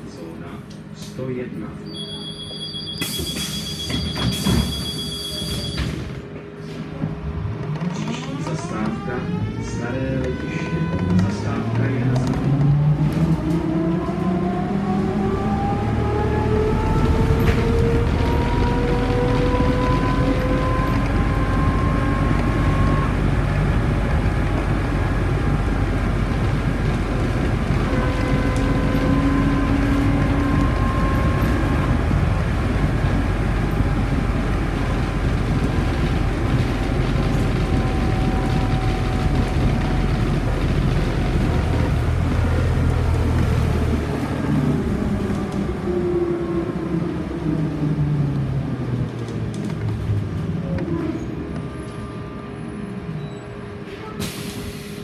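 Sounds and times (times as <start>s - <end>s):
trolleybus running rumble: 0.0s - 55.0s.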